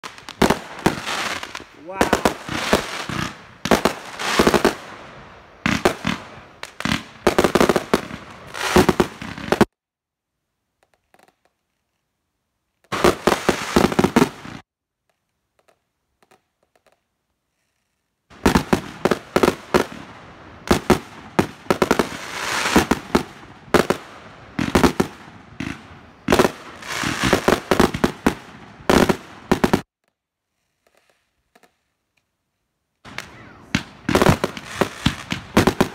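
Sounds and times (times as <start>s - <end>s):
fireworks launch shots and bursts: 0.0s - 9.7s, 12.9s - 14.7s, 18.3s - 29.9s, 33.0s - 35.9s.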